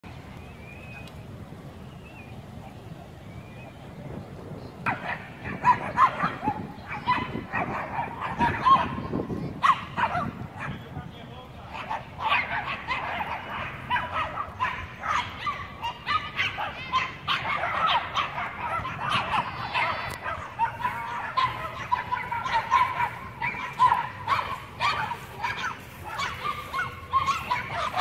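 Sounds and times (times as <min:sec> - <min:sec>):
small dogs yapping: 0:04.8 - 0:10.8, 0:11.7 - 0:28.0.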